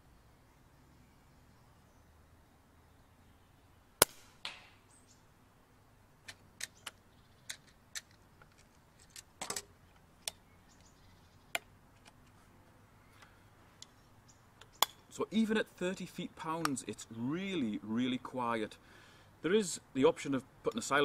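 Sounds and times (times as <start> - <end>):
air rifle clicks and clacks: 6.2 - 10.4.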